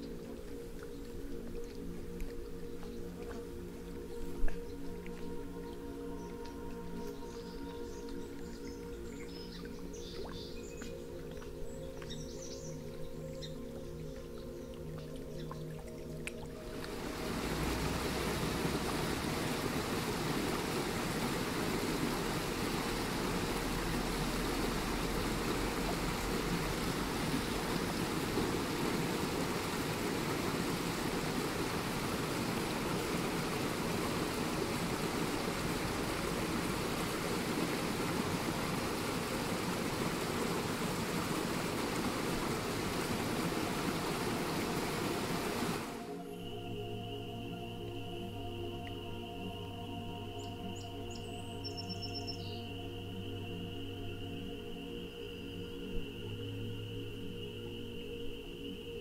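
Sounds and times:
stream flowing over rocks: 12.8 - 46.3.

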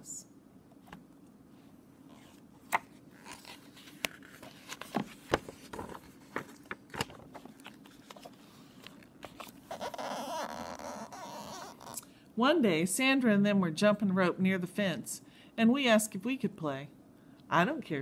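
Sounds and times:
page turning rustle: 2.1 - 11.0
paper pages clicking and tapping: 2.7 - 9.5.

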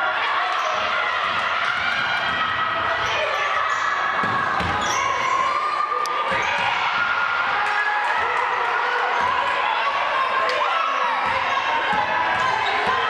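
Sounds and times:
sneakers squeaking: 0.4 - 7.2, 10.5 - 13.0.

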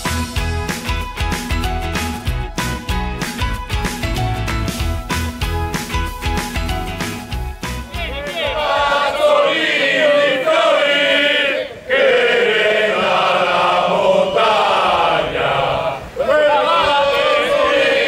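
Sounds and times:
male chorus chanting: 8.3 - 18.0.

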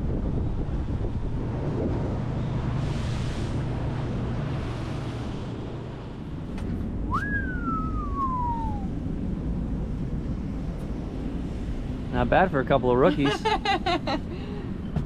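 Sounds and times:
wind and water rushing: 0.0 - 15.0
whistled tone sliding down: 7.1 - 9.0.

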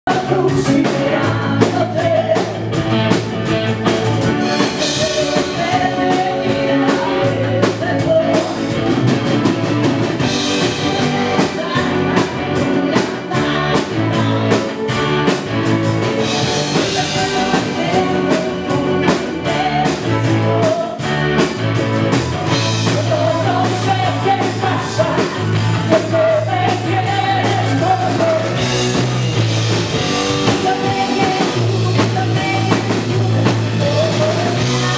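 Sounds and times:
drum kit: 0.0 - 34.9
electric bass: 0.0 - 34.9
keyboards: 0.0 - 34.9
woman singing lead: 0.1 - 29.1, 29.9 - 34.9
electric guitar: 0.1 - 34.9.

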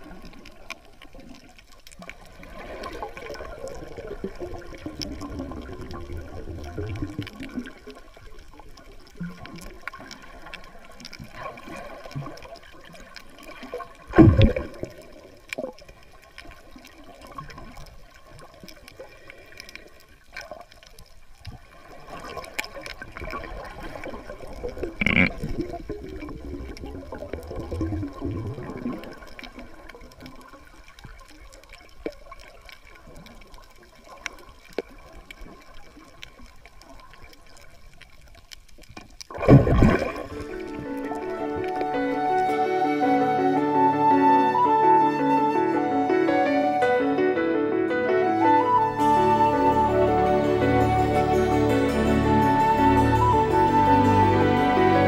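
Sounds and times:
muffled underwater sloshing: 0.0 - 55.0.

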